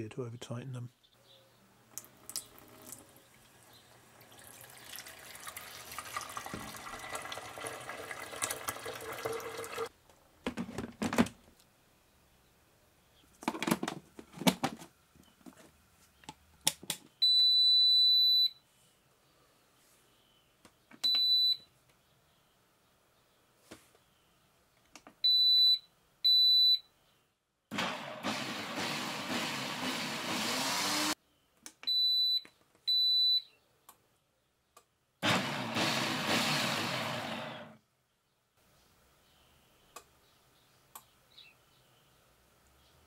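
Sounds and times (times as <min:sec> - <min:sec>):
tap water filling a jug: 0:02.0 - 0:09.9
appliance beeps: 0:17.2 - 0:18.6, 0:21.0 - 0:21.6, 0:25.2 - 0:26.9, 0:31.9 - 0:33.5.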